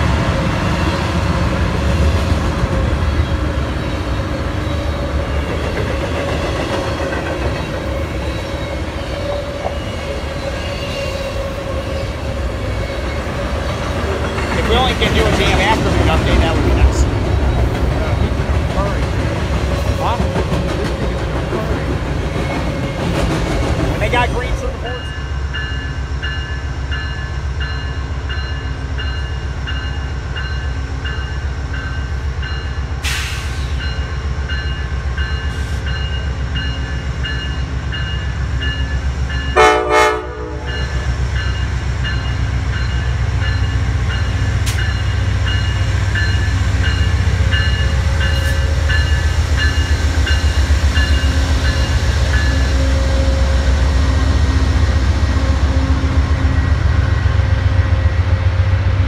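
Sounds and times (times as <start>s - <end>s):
diesel locomotive rumbling: 0.0s - 59.0s
train bell ringing: 24.0s - 54.0s
train horn blast: 39.5s - 41.0s.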